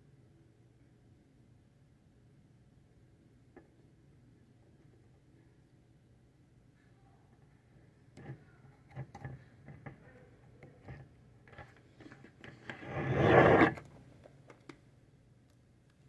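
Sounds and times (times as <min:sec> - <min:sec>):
plastic cup scraping on table: 0:12.4 - 0:13.9.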